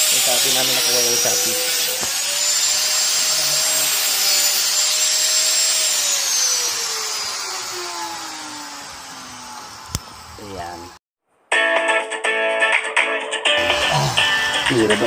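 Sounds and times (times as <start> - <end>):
electric grinder cutting steel: 0.0 - 11.0.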